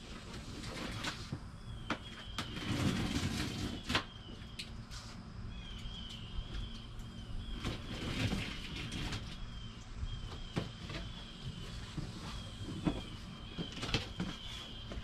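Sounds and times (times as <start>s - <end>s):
bird chirping: 1.6s - 2.8s, 5.5s - 15.0s.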